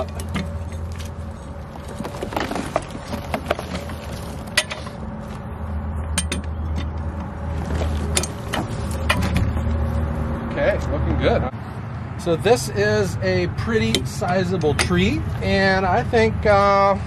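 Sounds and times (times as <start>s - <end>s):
wooden log knocks and scrapes: 1.7s - 5.5s.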